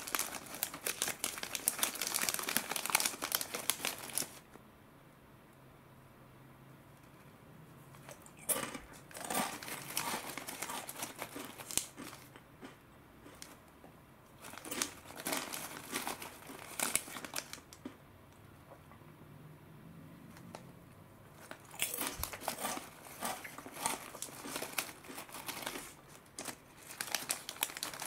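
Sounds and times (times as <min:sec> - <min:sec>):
snack bag crinkling: 0:00.0 - 0:04.4, 0:08.1 - 0:13.6, 0:14.4 - 0:17.9, 0:21.4 - 0:28.0.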